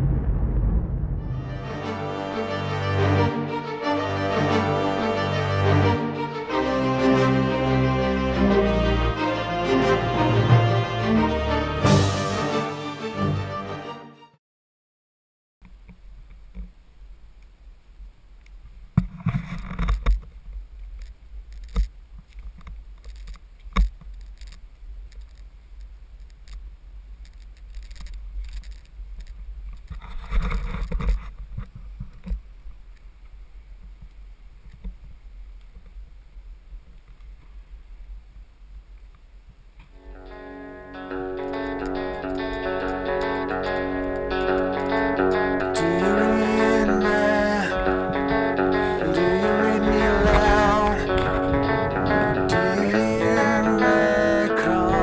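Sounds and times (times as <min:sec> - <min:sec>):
wind rumbling on microphone: 0:00.0 - 0:01.9, 0:49.8 - 0:55.0.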